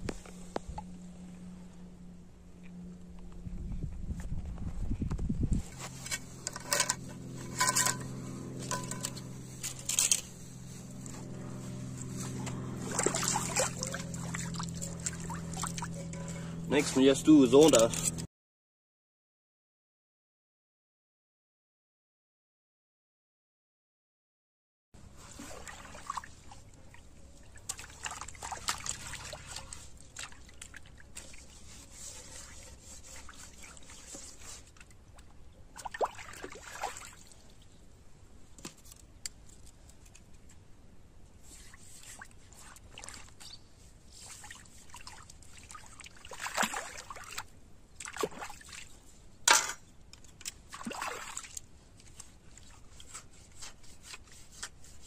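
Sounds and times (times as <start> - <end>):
water trickling and sloshing: 11.8 - 16.5, 25.0 - 38.0, 41.4 - 55.0
water splashes: 12.7 - 16.0, 25.2 - 32.1, 35.7 - 37.6, 41.9 - 43.4, 44.1 - 49.0, 50.6 - 51.7.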